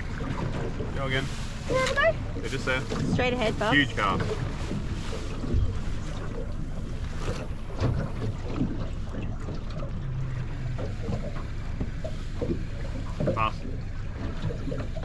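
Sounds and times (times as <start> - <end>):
wind buffeting microphone: 0.0 - 9.0
waves slapping boat hull: 0.0 - 15.0.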